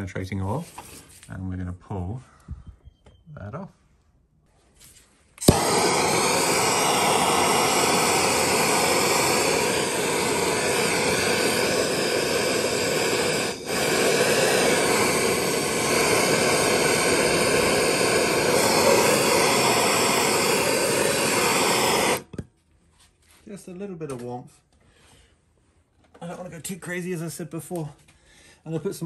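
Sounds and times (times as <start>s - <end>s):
gas torch igniter click: 5.4s - 22.3s
gas torch flame hissing: 5.4s - 22.4s.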